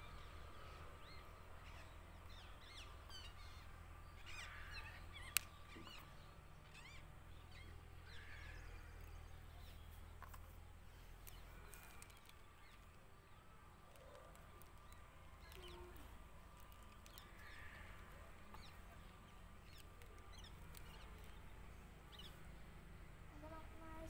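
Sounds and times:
distant bird chirps: 0.0s - 24.0s
faint ticks: 11.1s - 13.0s, 13.9s - 18.8s.

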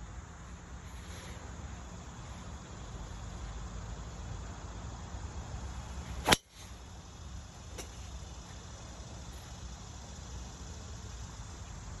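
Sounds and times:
outdoor background noise: 0.0s - 12.0s
golf club striking ball: 6.2s - 6.5s
sharp distant click: 6.2s - 6.6s.

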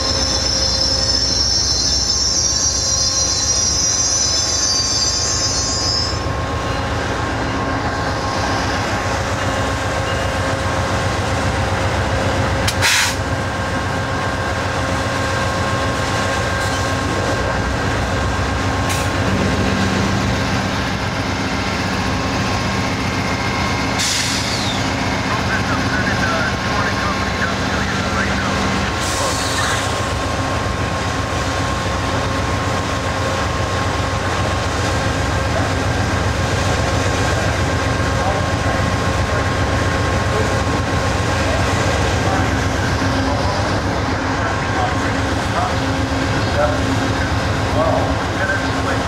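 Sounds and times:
train wheel squeal: 0.0s - 10.6s, 16.4s - 17.1s, 23.3s - 25.1s, 29.0s - 30.0s
diesel locomotive hum: 0.0s - 49.0s
train rumble: 0.0s - 49.0s
deeper engine hum: 6.2s - 49.0s.

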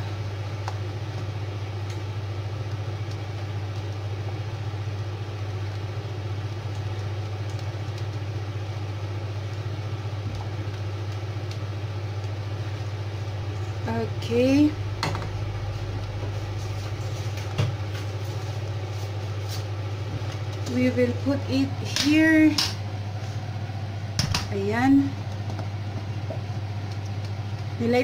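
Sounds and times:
low electrical hum: 0.0s - 28.0s.

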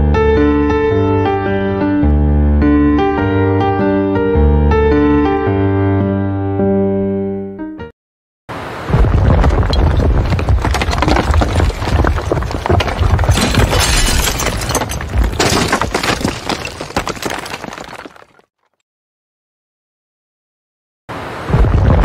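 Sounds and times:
debris crashing and crackling: 9.0s - 18.5s.

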